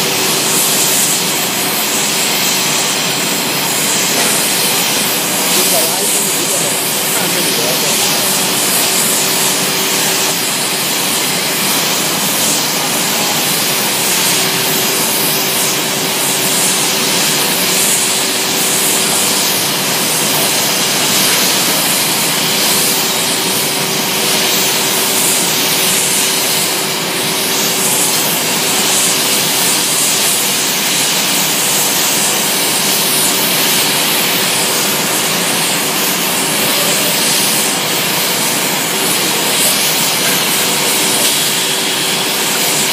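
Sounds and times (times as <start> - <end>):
gas burner flames hissing: 0.0 - 42.9.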